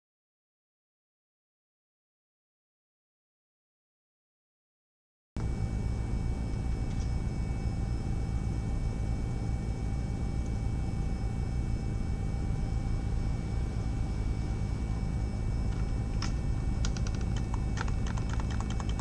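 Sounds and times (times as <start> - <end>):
thin high-pitched whine: 5.4 - 17.7
electrical hum and hiss: 5.4 - 19.0.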